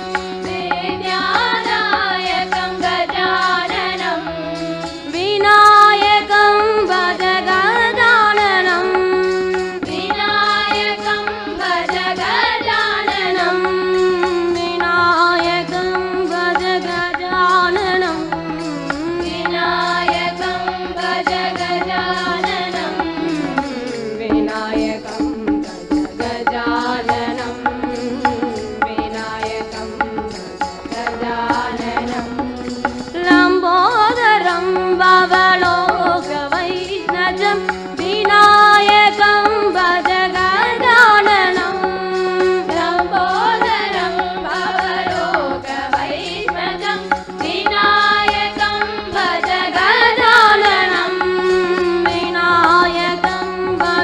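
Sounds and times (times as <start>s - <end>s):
hand percussion: 0.0s - 54.0s
women singing: 0.0s - 54.0s
held drone note: 18.1s - 38.0s, 46.4s - 54.0s.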